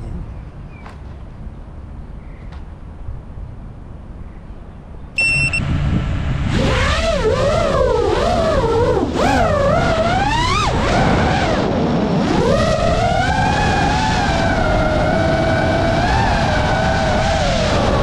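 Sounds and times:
quadcopter motors whining: 6.5 - 18.0.

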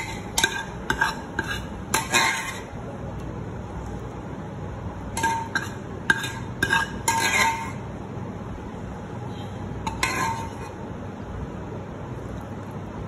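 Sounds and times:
ladle clinking against pot: 5.2 - 7.8.

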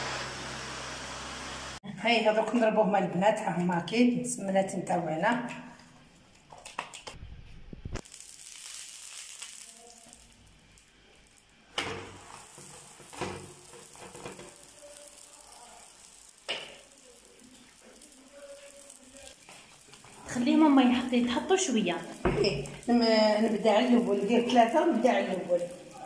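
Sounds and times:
dough sizzling on griddle: 0.0 - 1.8, 7.8 - 26.0.

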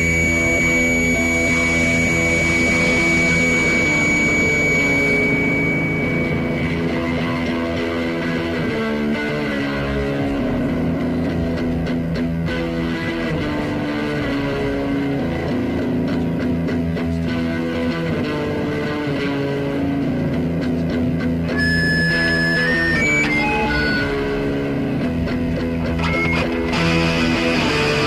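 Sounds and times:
improvised guitar music: 0.0 - 28.0.

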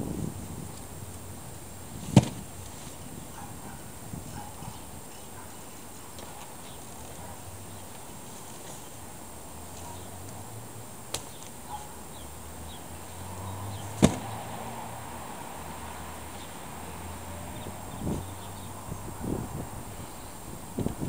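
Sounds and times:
outdoor background noise: 0.0 - 21.0
sharp knock: 14.0 - 14.3.

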